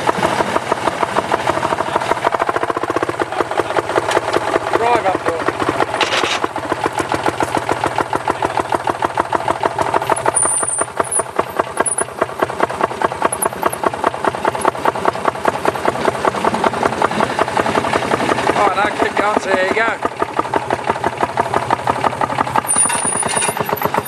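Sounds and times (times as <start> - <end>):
small engine puttering: 0.0 - 24.0.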